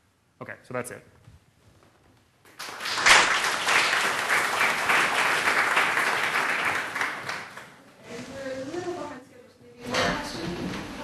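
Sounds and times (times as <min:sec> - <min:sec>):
audience applauding: 0:02.5 - 0:07.8.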